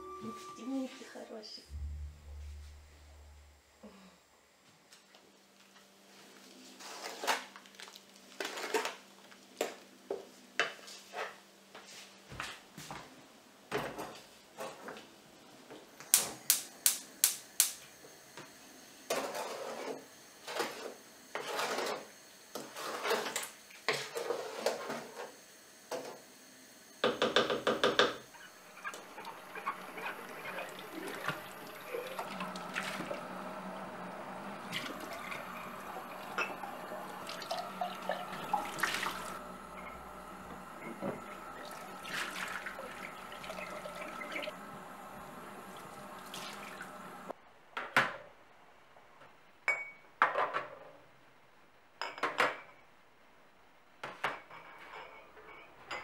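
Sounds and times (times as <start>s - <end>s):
tap water running: 27.2s - 47.3s.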